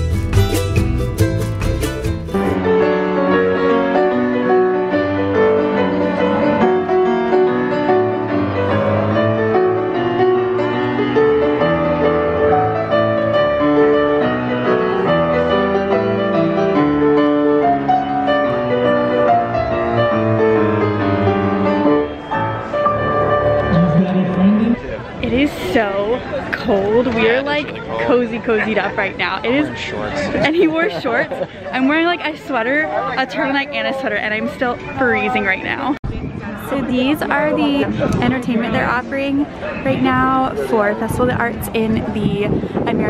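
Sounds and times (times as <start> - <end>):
grand piano melody: 0.0 - 25.8.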